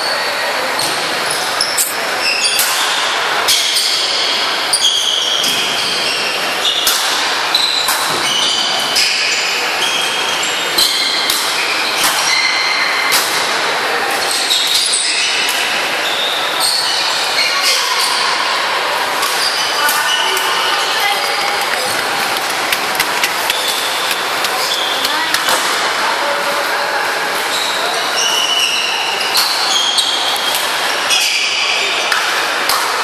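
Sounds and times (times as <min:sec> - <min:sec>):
shoes squeaking on wooden floor: 0:00.8 - 0:02.3, 0:19.4 - 0:25.6.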